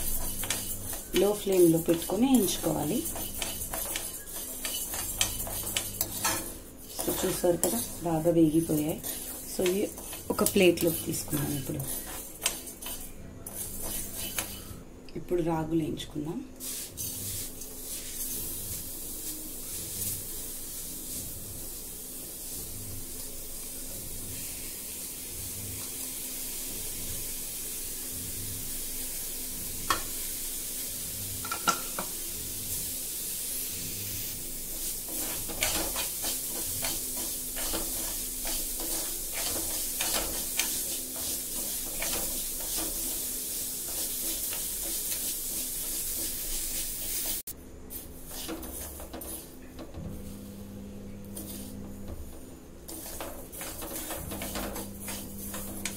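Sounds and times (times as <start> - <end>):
spoon scraping a pan: 0.0 - 14.8, 16.6 - 21.4, 29.8 - 30.3, 31.3 - 32.2, 33.6 - 49.9, 51.2 - 55.9
grains sizzling in a pan: 0.0 - 55.9.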